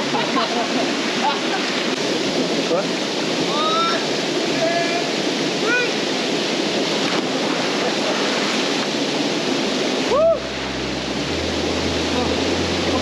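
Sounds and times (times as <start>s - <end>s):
waterfall rushing: 0.0s - 13.0s
person whooping: 10.1s - 10.5s.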